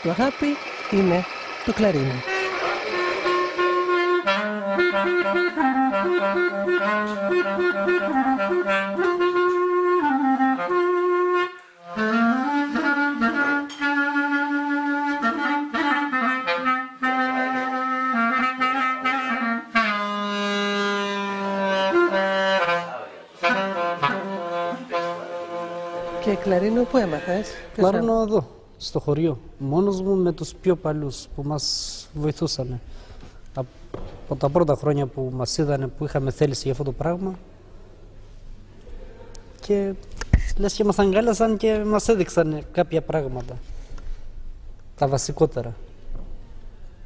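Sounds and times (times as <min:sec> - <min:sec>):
solo clarinet melody: 0:01.8 - 0:28.0.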